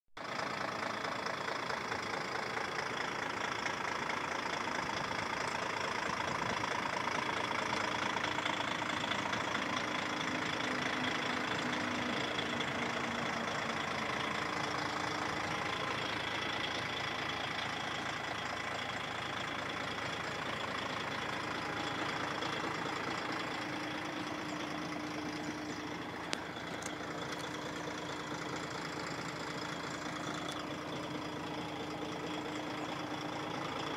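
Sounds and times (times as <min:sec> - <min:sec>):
diesel engine idling: 0:00.2 - 0:33.9
click: 0:26.2 - 0:27.5.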